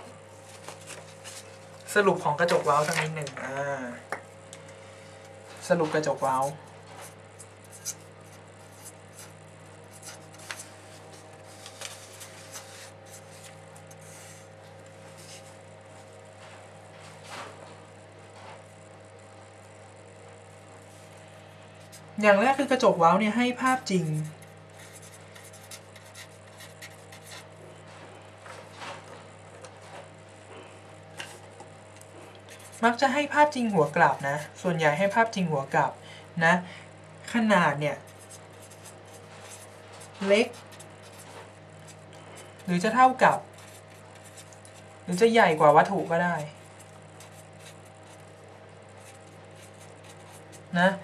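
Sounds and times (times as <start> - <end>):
steady low hum: 0.0 - 51.0
marker scratching on paper: 6.3 - 14.5, 23.4 - 27.5, 38.0 - 44.8, 46.4 - 48.3, 49.0 - 50.8.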